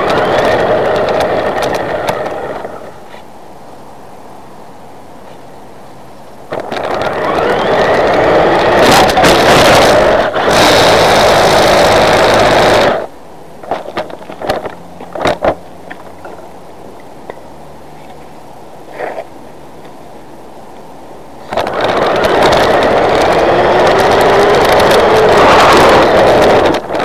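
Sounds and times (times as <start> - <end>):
toy car electric motor and gears: 0.0 - 2.9, 6.5 - 13.1, 21.4 - 27.0
tyres on asphalt: 0.0 - 27.0.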